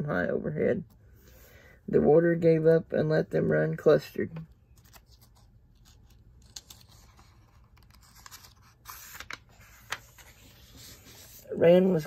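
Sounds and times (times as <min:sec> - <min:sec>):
book page turning: 0:04.6 - 0:12.0.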